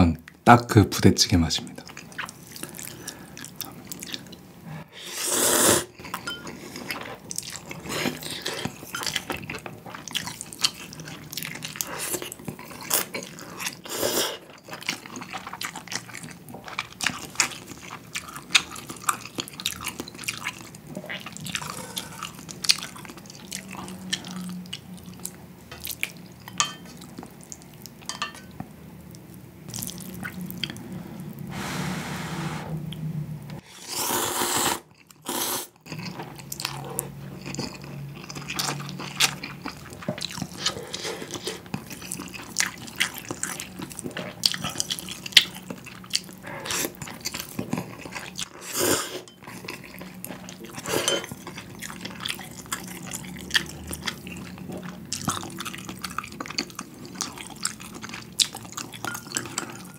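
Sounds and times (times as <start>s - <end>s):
wet chewing: 34.9s - 59.9s.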